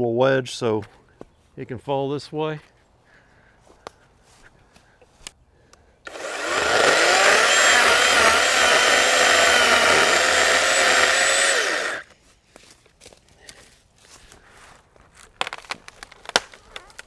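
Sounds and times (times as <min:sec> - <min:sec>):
electric chainsaw cutting wood: 0:06.1 - 0:12.1.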